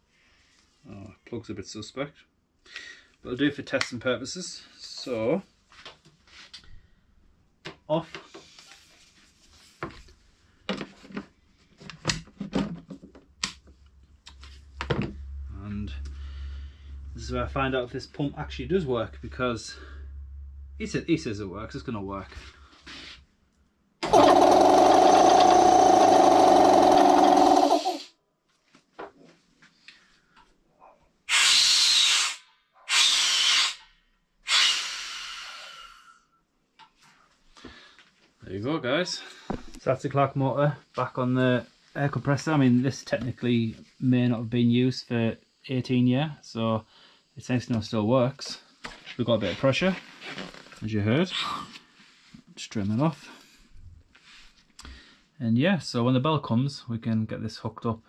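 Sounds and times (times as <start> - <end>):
air compressor motor running: 24.0 - 28.1
compressed air hissing: 31.3 - 33.9, 34.5 - 36.1.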